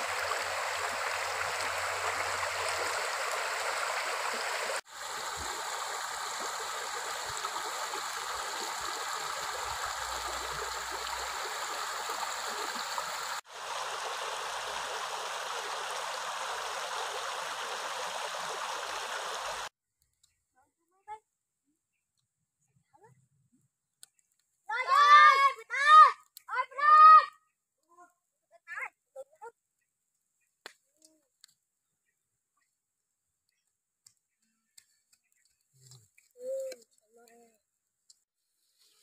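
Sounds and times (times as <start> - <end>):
stream running over stones: 0.0 - 19.7.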